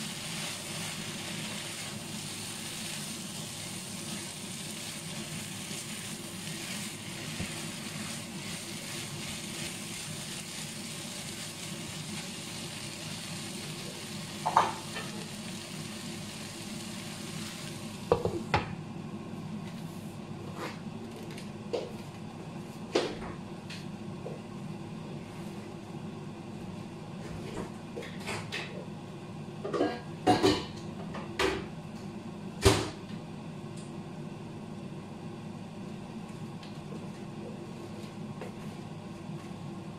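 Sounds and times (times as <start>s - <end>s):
spatula stirring in a pan: 0.0s - 15.0s
food sizzling in a frying pan: 0.0s - 18.5s.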